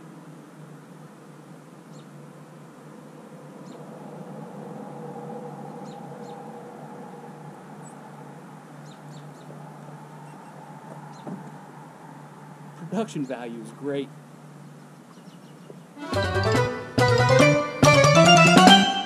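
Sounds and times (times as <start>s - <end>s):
low background hum: 0.0s - 16.0s
high bird chirps: 4.6s - 11.8s.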